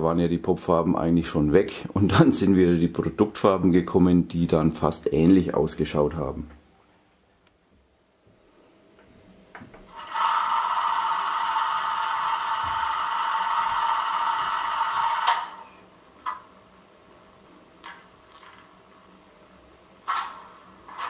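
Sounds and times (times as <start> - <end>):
model locomotive mechanical buzzing: 9.9 - 15.8.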